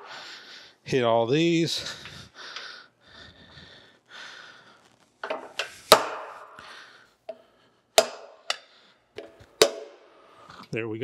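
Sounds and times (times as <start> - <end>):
hammer tapping metal punch: 8.0 - 8.6, 9.2 - 9.9.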